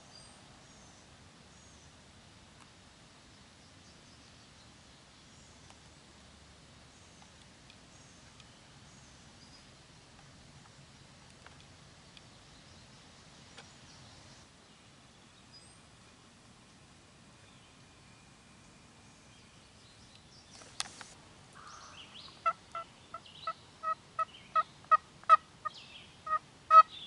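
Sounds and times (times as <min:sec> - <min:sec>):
faint outdoor hiss: 0:00.0 - 0:27.0
soft clicks: 0:20.1 - 0:21.2.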